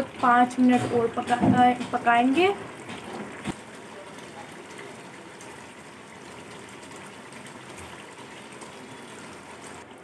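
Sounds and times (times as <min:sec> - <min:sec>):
curry simmering in a pot: 0:00.0 - 0:10.0.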